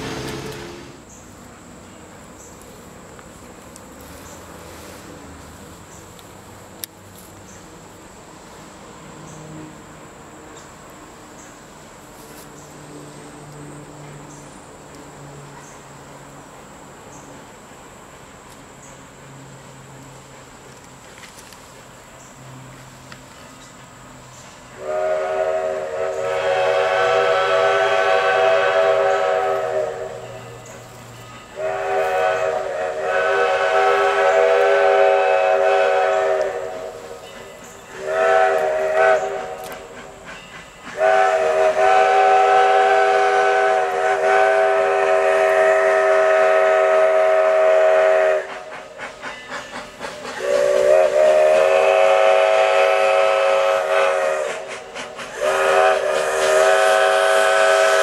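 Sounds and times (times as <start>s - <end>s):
steam locomotive whistle blasts: 0.0s - 1.0s, 24.7s - 30.6s, 31.2s - 58.0s.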